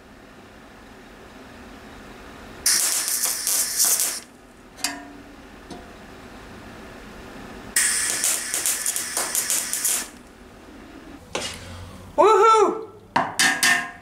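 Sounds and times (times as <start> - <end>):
welder arc crackling and hissing: 2.6 - 4.4, 7.7 - 11.2.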